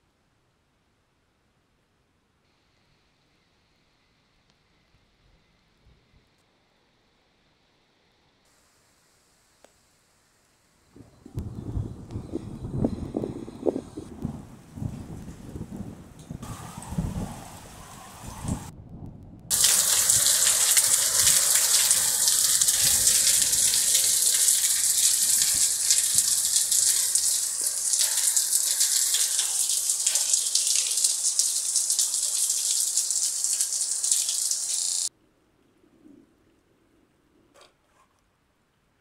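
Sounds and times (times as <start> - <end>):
low rumble of thunder: 11.0 - 27.4
heavy rain pouring: 11.5 - 18.8, 19.5 - 35.1.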